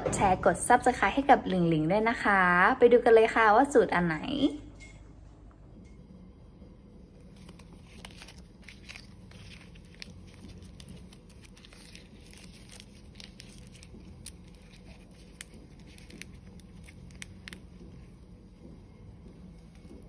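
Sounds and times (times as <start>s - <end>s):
steady low hum: 0.0s - 20.0s
leaves crackling and snapping: 7.2s - 18.1s.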